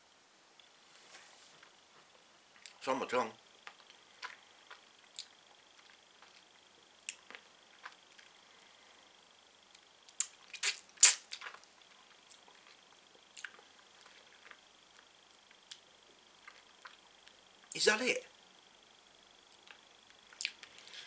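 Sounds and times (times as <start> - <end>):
lip smacks: 3.7 - 6.4, 10.1 - 11.6, 13.4 - 13.6, 19.5 - 20.7.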